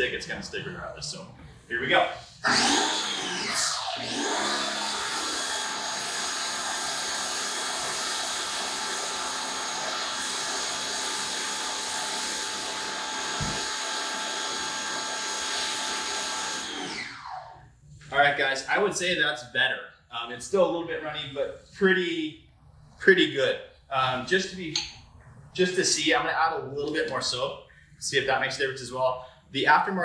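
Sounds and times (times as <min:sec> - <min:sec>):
pressure washer motor whine: 0:02.2 - 0:17.7
hissing foam spray: 0:05.0 - 0:16.3.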